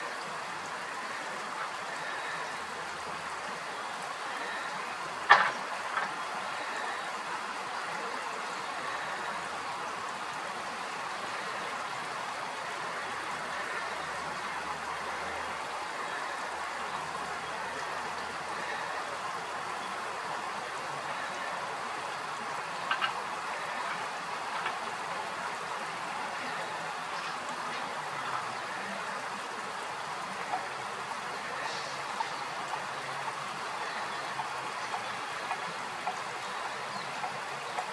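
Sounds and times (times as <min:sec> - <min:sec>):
stream flowing over stones: 0:00.0 - 0:37.9
water plinks: 0:00.0 - 0:37.9.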